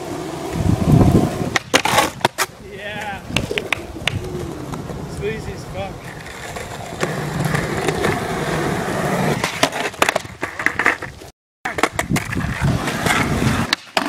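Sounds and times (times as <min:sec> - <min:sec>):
skateboard wheels rolling on concrete: 0:00.0 - 0:14.0
skateboard clacks and knocks: 0:01.5 - 0:05.0, 0:09.4 - 0:11.1, 0:11.7 - 0:14.0.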